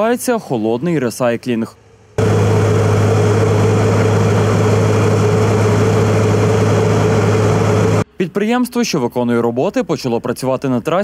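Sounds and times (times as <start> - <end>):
milling machine diesel drone: 1.7 - 8.0.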